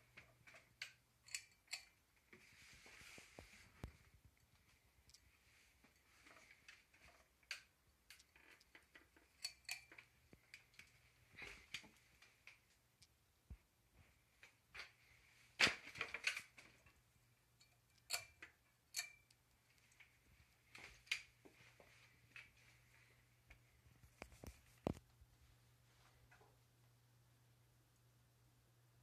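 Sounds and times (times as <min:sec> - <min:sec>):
faint low hum: 0:00.0 - 0:29.0
light clicks and clinks: 0:00.2 - 0:02.0, 0:05.9 - 0:12.3, 0:17.6 - 0:20.1.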